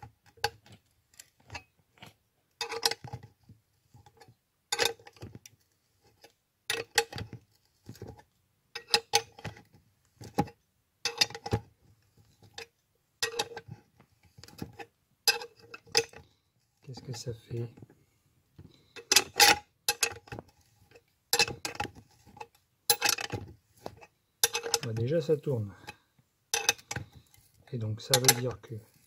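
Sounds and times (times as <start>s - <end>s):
metal tools clicking and clinking: 19.0s - 20.3s, 22.4s - 23.4s, 24.4s - 25.0s, 26.6s - 27.1s, 28.1s - 28.6s.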